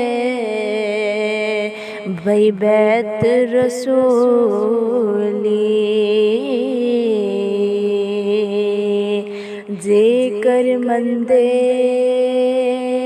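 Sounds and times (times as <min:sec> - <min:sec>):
person singing devotional song: 0:00.0 - 0:13.0.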